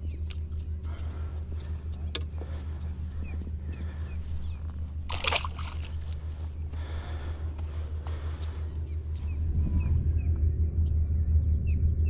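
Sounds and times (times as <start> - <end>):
fish splashing in water: 2.4 - 8.8.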